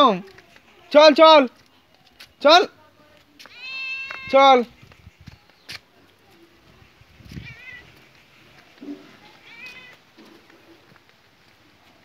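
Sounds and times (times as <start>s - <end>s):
cat meowing: 3.5s - 4.4s, 7.4s - 8.0s, 9.3s - 10.0s.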